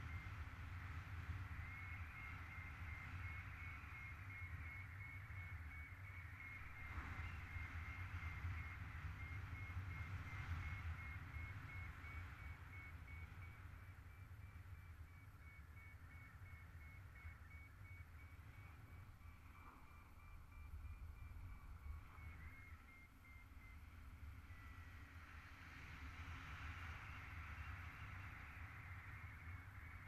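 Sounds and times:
wind rumbling on microphone: 0:00.0 - 0:30.0
rapid high variometer beeps: 0:01.6 - 0:24.9.

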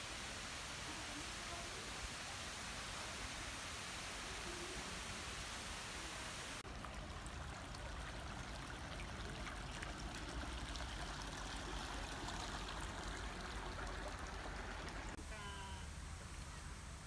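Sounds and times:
stream trickling and babbling: 0:00.0 - 0:17.0
small water splashes and drips: 0:06.6 - 0:15.2.

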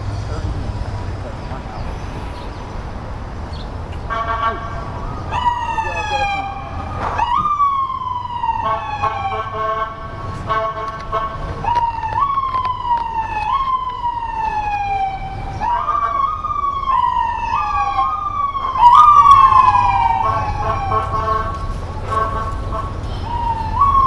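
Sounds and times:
steady horn tone: 0:04.0 - 0:05.2, 0:08.6 - 0:11.6, 0:20.0 - 0:23.4
emergency vehicle siren: 0:04.1 - 0:24.0.

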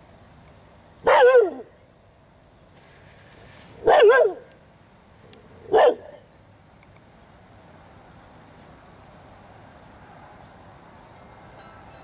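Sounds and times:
dog barking: 0:01.0 - 0:01.6, 0:03.8 - 0:04.4, 0:05.7 - 0:06.2.

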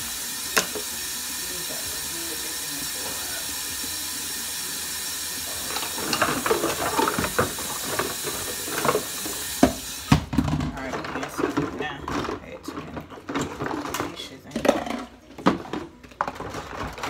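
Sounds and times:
faucet running into steel sink: 0:00.0 - 0:12.6
dishes clattering: 0:00.5 - 0:00.9, 0:05.5 - 0:17.0.

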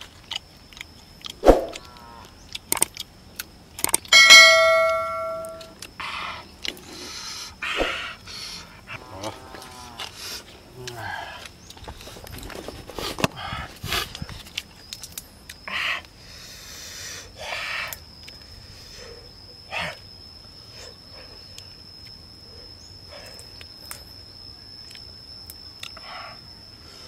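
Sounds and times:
eating clicks and cracks: 0:00.0 - 0:04.2, 0:05.6 - 0:06.9, 0:13.9 - 0:16.2, 0:24.8 - 0:26.0
thin high whine: 0:04.0 - 0:11.2, 0:15.3 - 0:27.0.

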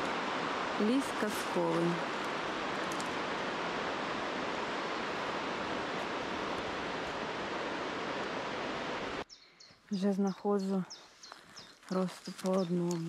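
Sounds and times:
mountain river rushing: 0:00.0 - 0:09.3.

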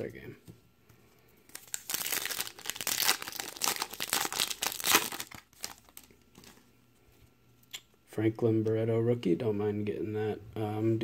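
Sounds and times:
plastic foil wrapper crinkling: 0:01.5 - 0:06.6.

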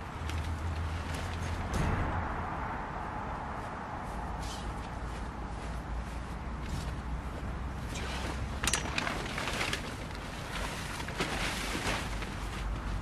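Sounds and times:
camping gear rustling: 0:00.0 - 0:01.8, 0:04.0 - 0:13.0
steady low rumble: 0:00.0 - 0:08.6.

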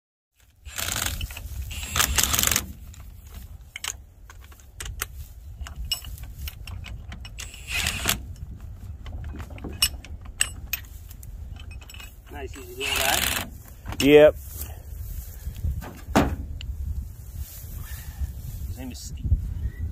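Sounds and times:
steady low rumble: 0:00.5 - 0:19.9
metal tools clinking on brake drum: 0:03.7 - 0:08.4, 0:09.1 - 0:14.2.

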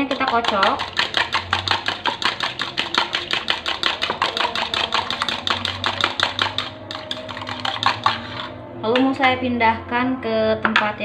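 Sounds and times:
fork beating egg in bowl: 0:00.0 - 0:08.6.

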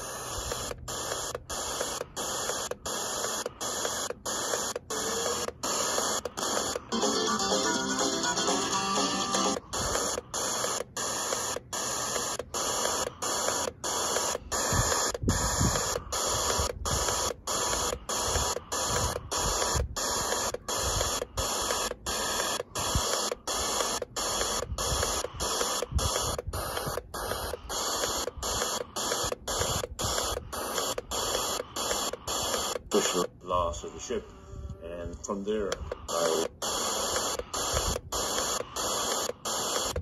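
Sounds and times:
radio static hiss: 0:00.0 - 0:34.3, 0:34.9 - 0:40.0.

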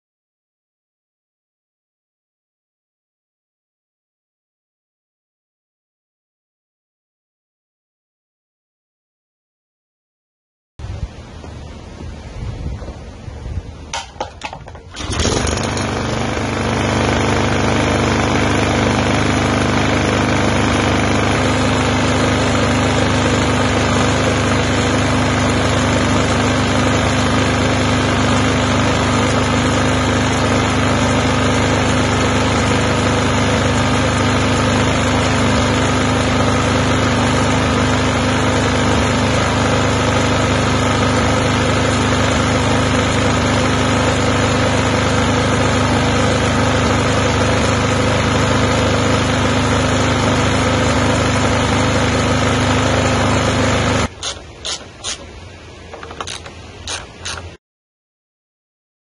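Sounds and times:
lawn mower engine running: 0:13.7 - 0:57.6.

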